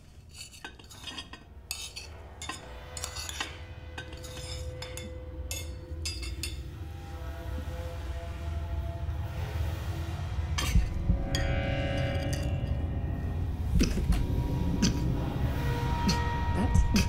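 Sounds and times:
cutlery clinking against plates: 0.3 - 6.6
low rumble: 3.5 - 17.0.

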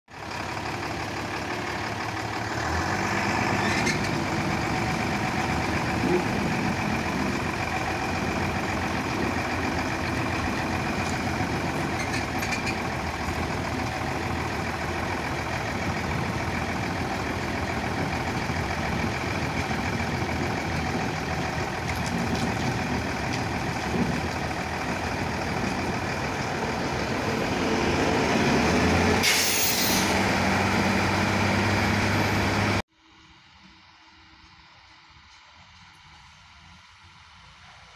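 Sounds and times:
diesel truck engine running: 0.1 - 32.8
loud burst of hiss: 29.2 - 30.1.

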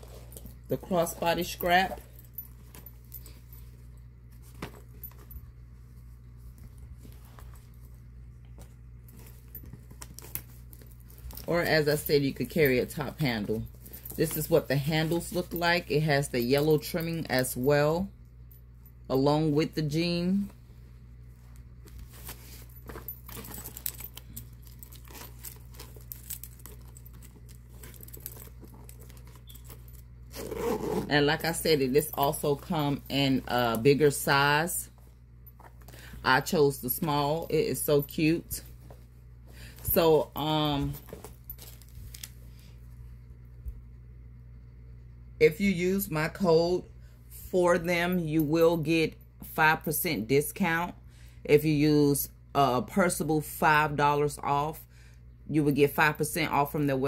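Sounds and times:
bag rustling: 0.0 - 15.8, 21.2 - 42.4
steady low hum: 0.0 - 57.0
metal clasps clinking: 22.5 - 30.2, 31.3 - 34.6.

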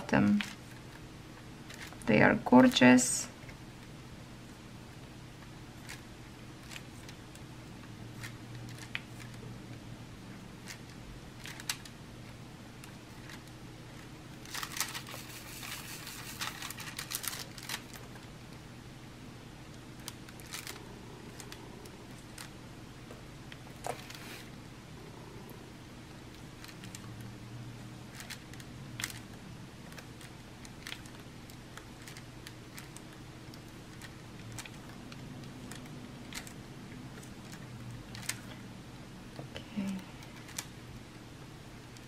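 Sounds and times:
low steady hum: 0.0 - 42.0
plastic film crinkling: 14.4 - 18.3, 19.9 - 22.6.

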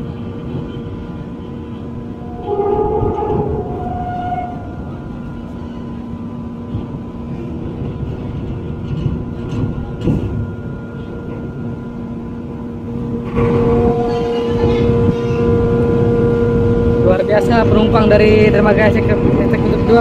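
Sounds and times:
constant hum: 0.0 - 20.0
ferry engines rumbling: 0.0 - 20.0
strong steady tone: 1.5 - 7.4, 10.4 - 17.0.

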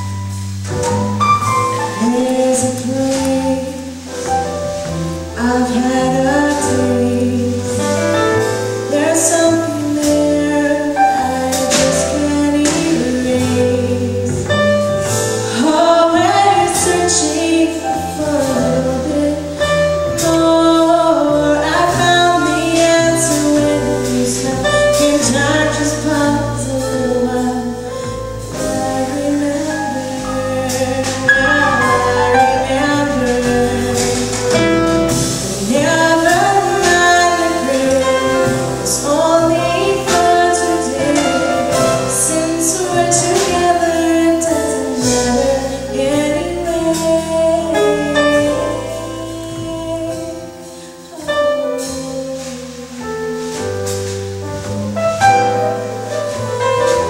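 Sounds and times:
drum kit with cymbals: 0.0 - 57.0
piano: 0.0 - 57.0
upright bass: 0.0 - 57.0
woman singing: 1.8 - 54.2.

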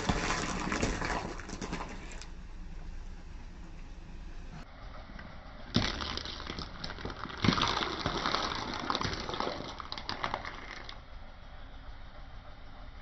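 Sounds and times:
eggs cracking under tyre: 5.7 - 11.0.

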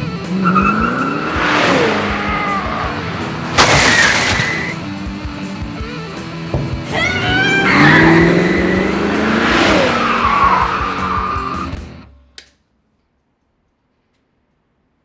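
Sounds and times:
car tyres skidding and squealing: 0.1 - 4.8, 6.9 - 11.8.

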